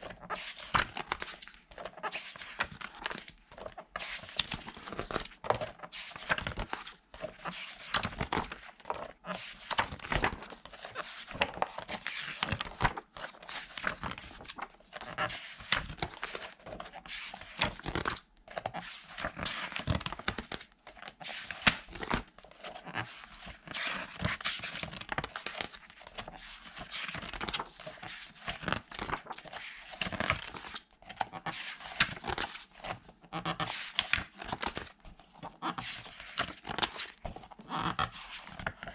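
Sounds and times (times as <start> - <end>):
book pages rustling and flapping: 0.0 - 38.9.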